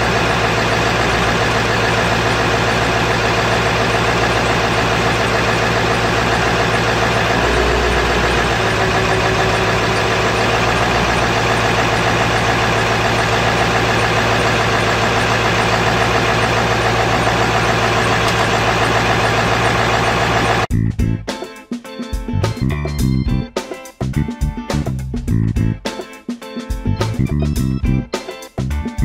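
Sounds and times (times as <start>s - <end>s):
diesel engine idling: 0.0s - 20.7s.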